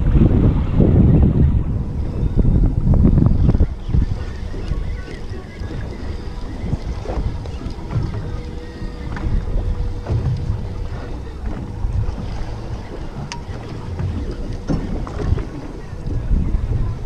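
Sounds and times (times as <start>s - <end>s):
wind buffeting microphone: 0.0s - 17.0s
faint knocks: 5.1s - 15.6s.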